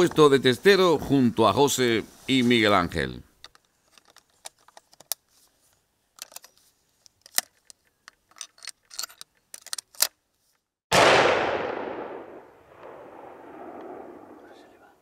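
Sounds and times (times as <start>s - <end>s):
rifle shot with echo: 10.9s - 14.9s.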